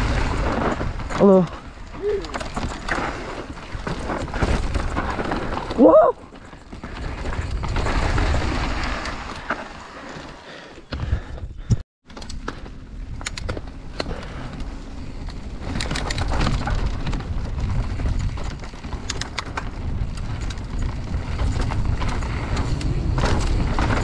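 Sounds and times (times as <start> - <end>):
tyres on dirt: 0.0 - 24.0
bike clicks and rattles: 0.1 - 24.0
wind buffeting microphone: 14.2 - 24.0.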